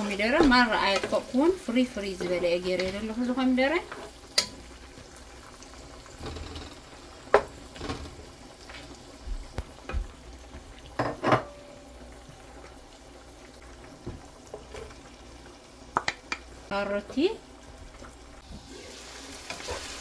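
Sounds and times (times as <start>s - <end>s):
spatula stirring in frying pan: 0.0s - 5.1s, 18.4s - 20.0s
faint sizzle: 0.0s - 20.0s.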